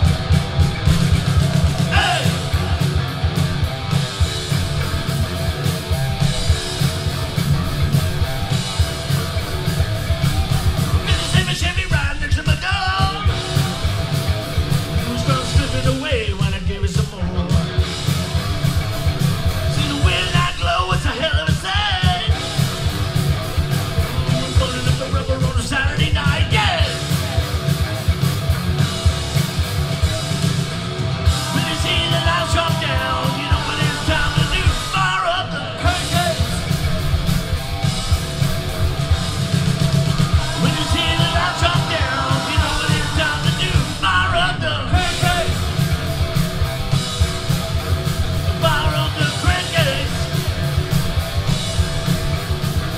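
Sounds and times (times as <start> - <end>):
live rock band playing: 0.0 - 52.9
man singing and shouting: 1.8 - 3.0, 11.0 - 14.2, 14.9 - 17.8, 19.7 - 22.6, 24.0 - 27.2, 31.3 - 36.8, 40.2 - 45.8, 48.5 - 50.4.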